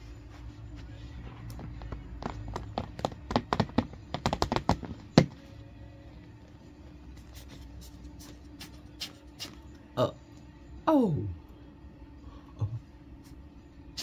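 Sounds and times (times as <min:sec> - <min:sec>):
faint steady hum: 0:04.9 - 0:14.0.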